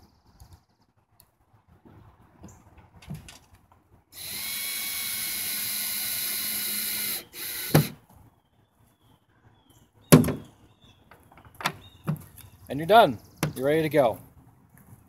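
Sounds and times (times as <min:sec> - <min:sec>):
cordless drill driving screw: 0:04.2 - 0:08.0.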